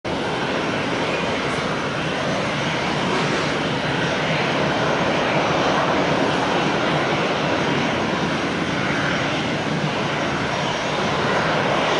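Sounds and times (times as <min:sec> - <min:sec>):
jet engines rushing: 0:00.1 - 0:11.9.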